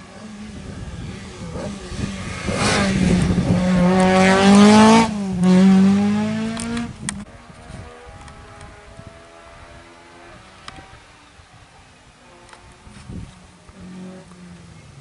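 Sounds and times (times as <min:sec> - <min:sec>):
rally car engine accelerating: 0:00.0 - 0:11.4.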